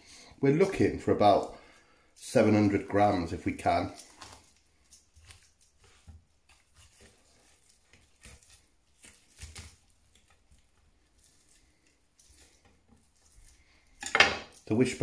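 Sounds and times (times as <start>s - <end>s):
hands tearing meat: 4.0s - 13.9s
knife slicing cooked chicken: 5.2s - 11.6s.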